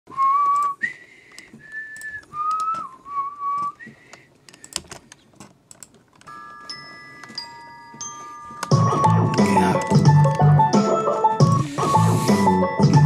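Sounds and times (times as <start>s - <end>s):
person whistling a tune: 0.1s - 4.1s
keyboard and mouse clicks: 3.6s - 11.7s.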